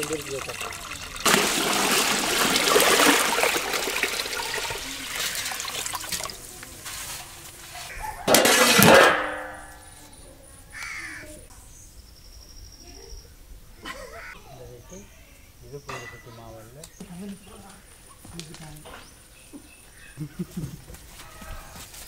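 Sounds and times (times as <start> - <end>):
water pouring into a metal pot: 0.0 - 6.6.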